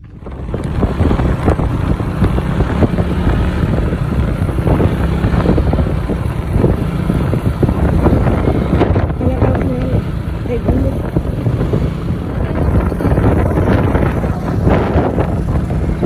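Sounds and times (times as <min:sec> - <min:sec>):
vehicle and road rumble: 0:00.0 - 0:16.0
wind buffeting microphone: 0:00.0 - 0:16.0.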